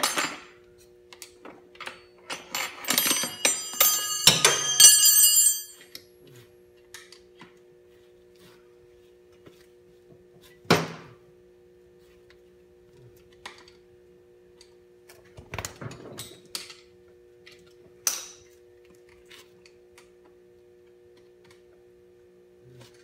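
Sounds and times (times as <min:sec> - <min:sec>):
metal hand tools clinking: 0:01.9 - 0:05.8.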